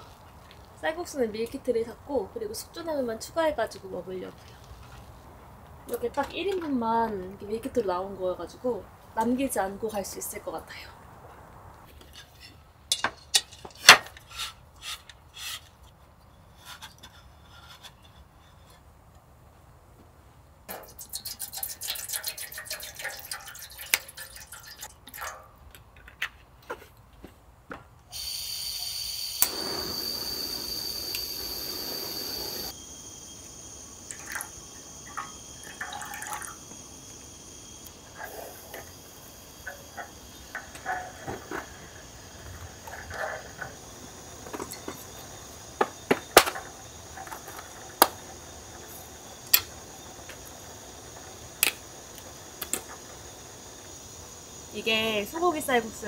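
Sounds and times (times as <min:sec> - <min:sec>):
steady low hiss: 0:00.0 - 0:21.8, 0:22.5 - 0:56.0
water pouring: 0:20.7 - 0:25.4, 0:34.0 - 0:41.8.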